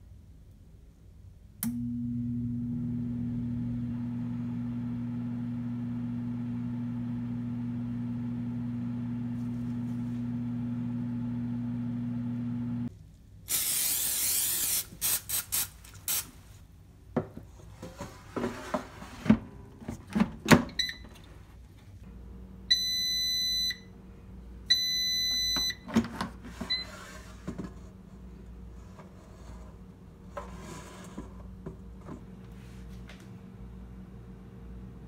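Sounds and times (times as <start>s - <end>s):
fan humming: 2.7s - 12.9s
air fryer hiss: 13.5s - 14.9s.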